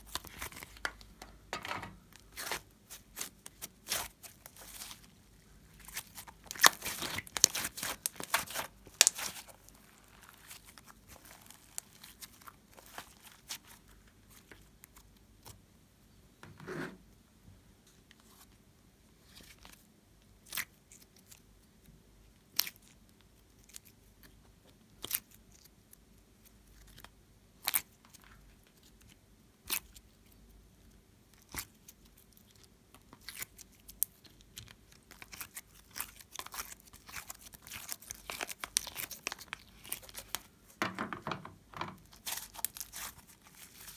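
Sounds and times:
hands squeezing slime: 0:05.8 - 0:14.6, 0:31.4 - 0:40.5, 0:42.1 - 0:43.9.

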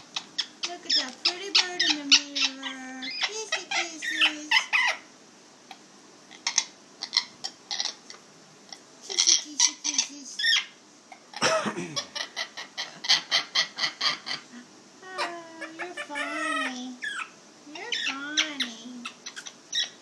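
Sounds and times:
parrot chattering: 0:00.0 - 0:05.1, 0:05.7 - 0:20.0.

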